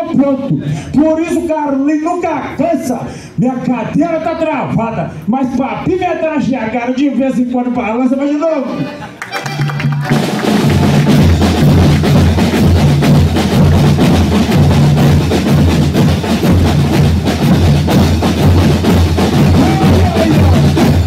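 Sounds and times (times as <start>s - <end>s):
snare and bass drums beating: 9.9s - 21.0s.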